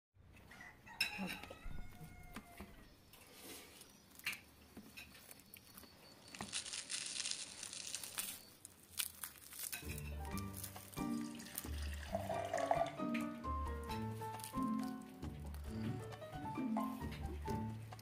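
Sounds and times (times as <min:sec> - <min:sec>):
pastry crackling as torn: 0:05.1 - 0:11.9, 0:14.0 - 0:15.7
music: 0:09.8 - 0:18.0.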